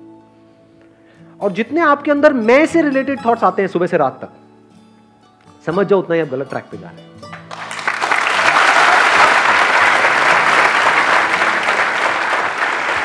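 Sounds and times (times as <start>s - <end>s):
large audience applauding: 7.3s - 13.0s.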